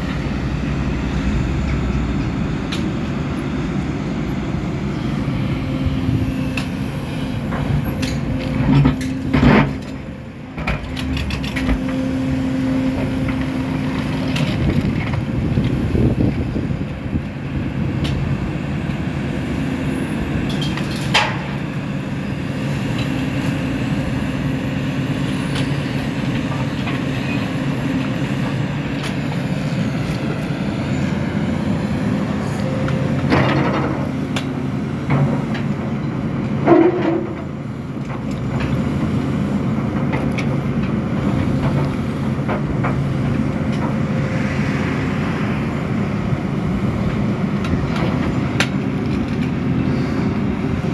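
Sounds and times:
excavator diesel engine running: 0:00.0 - 0:50.9.

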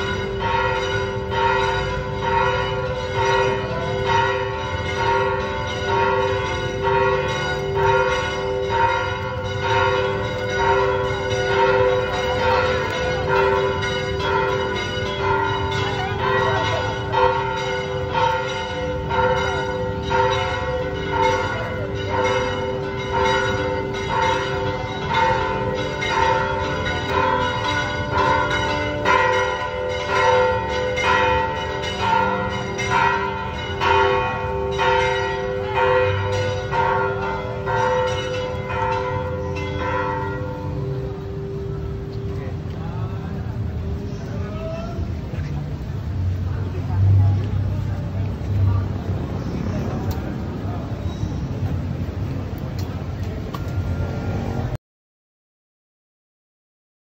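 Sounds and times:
church bells ringing: 0:00.0 - 0:45.4.

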